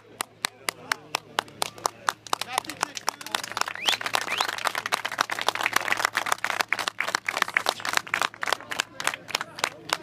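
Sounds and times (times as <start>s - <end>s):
people applauding: 0.0s - 10.0s.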